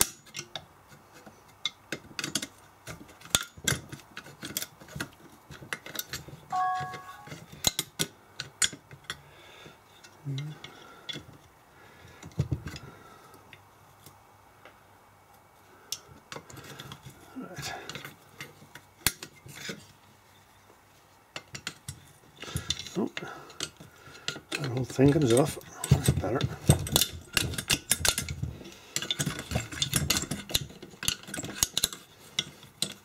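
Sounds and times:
short metallic ring: 6.5 - 7.4.

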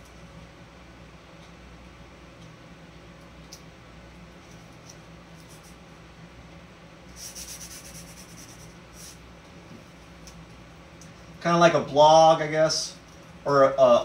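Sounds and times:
tape rubbed onto canvas: 7.2 - 9.2.

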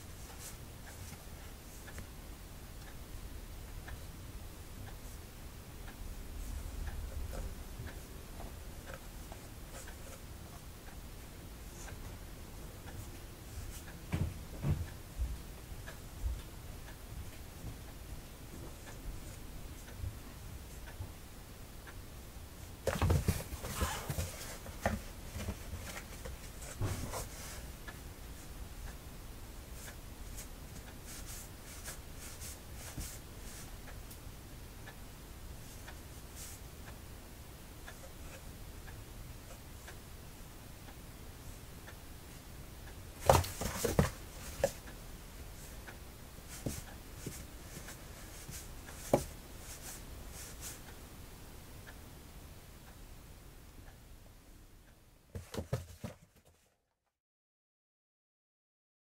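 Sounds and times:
scraping and bumps on cardboard: 22.8 - 27.5, 43.2 - 44.8, 46.5 - 49.3, 55.4 - 56.6
cats scuffling in cardboard box: 22.9 - 27.6, 43.2 - 44.8, 46.5 - 50.7, 55.4 - 56.6
cats knocking on cardboard box: 43.2 - 44.7, 55.4 - 56.2.

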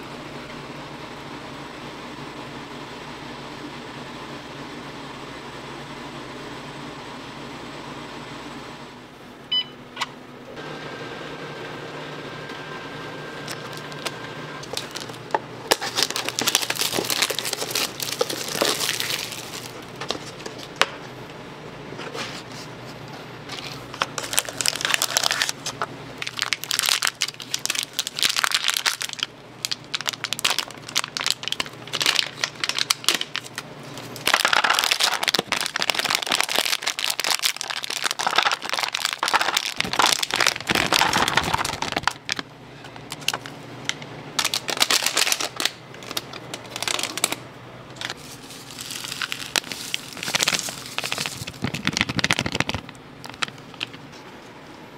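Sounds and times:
plastic wrapper crinkling: 13.5 - 20.8, 23.5 - 43.6, 44.4 - 47.4, 48.0 - 54.0.

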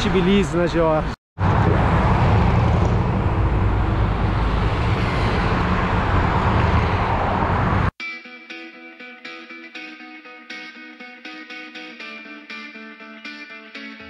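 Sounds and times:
city traffic rumble: 0.0 - 8.0
guitar music: 8.0 - 14.0.

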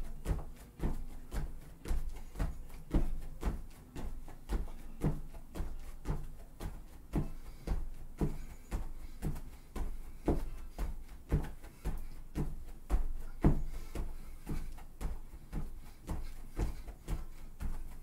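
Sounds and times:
feet landing on foam mats: 0.0 - 18.0.

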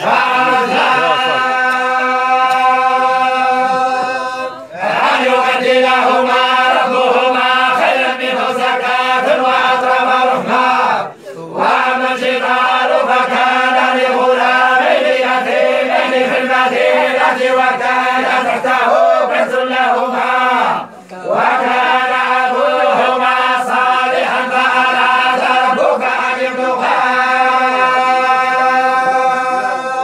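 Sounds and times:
group chanting in unison: 0.0 - 30.0.

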